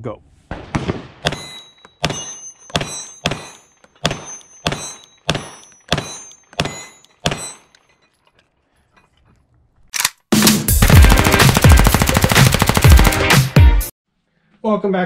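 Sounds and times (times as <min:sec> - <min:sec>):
pistol slide locking back: 0:10.0 - 0:10.2.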